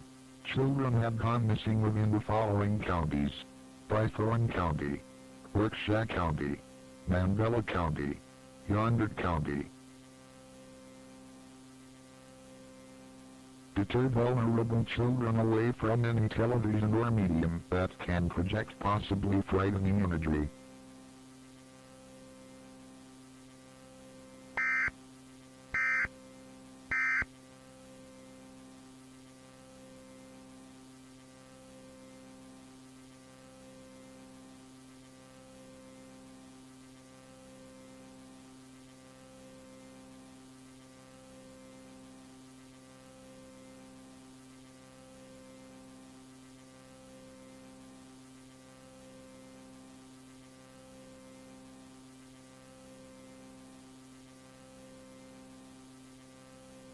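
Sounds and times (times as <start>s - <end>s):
electrical hum: 0.0s - 40.2s
emergency alert data tones: 24.6s - 24.9s, 25.8s - 26.1s, 26.9s - 27.3s.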